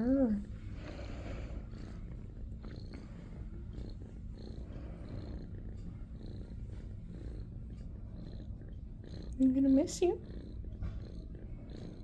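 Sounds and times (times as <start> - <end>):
kitten purring: 0.0 - 12.0.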